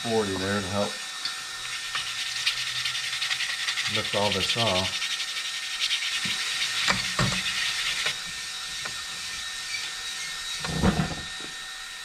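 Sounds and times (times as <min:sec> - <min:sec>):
sandpaper scrubbing metal: 0:01.6 - 0:10.6
thump: 0:10.7 - 0:11.2.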